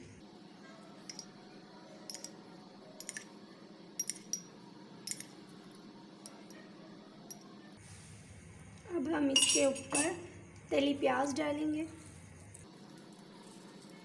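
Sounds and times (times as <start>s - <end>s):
metal spoon clinking ceramic cup: 1.1s - 1.3s, 2.1s - 2.4s, 4.0s - 4.5s, 9.3s - 10.2s.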